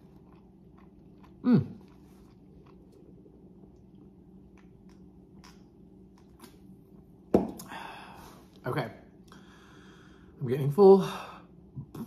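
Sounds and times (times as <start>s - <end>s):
chewing and mouth clicks: 0.0s - 6.7s.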